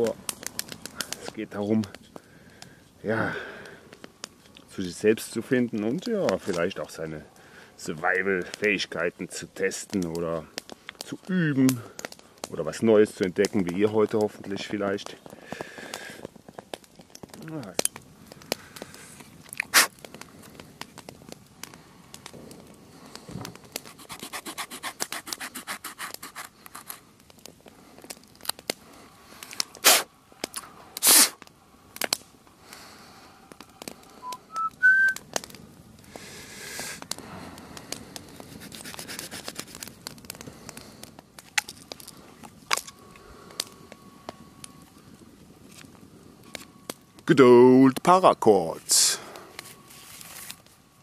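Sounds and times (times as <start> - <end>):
small saw cutting a branch: 23.9 - 27.0, 38.6 - 39.9.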